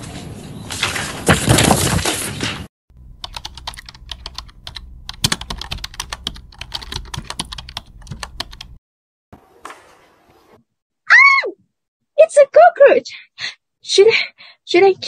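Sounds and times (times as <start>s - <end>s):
laptop keyboard typing: 3.2s - 8.8s.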